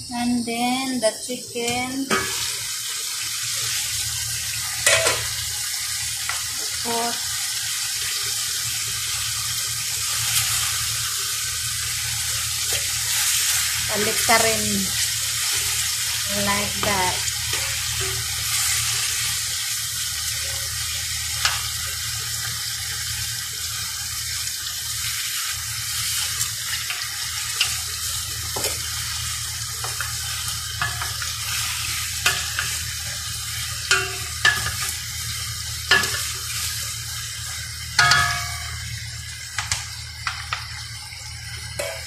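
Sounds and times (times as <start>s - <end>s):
chicken sizzling in a pot: 0.0s - 42.0s
low hum: 36.8s - 42.0s.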